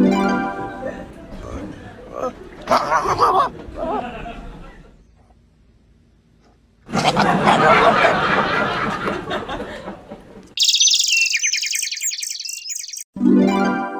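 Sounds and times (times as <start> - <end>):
high rapid chirping: 10.6 - 13.1.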